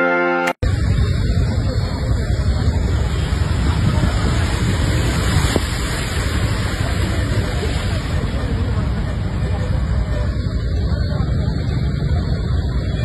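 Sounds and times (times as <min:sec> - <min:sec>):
bus driving through water: 0:00.6 - 0:13.0
heavy rain: 0:00.6 - 0:13.0
floodwater rushing: 0:00.8 - 0:13.0.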